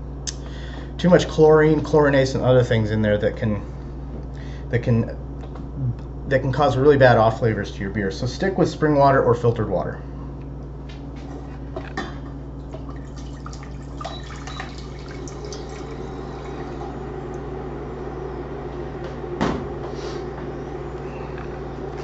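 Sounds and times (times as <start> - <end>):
water pouring into a saucepan: 12.9 - 16.9.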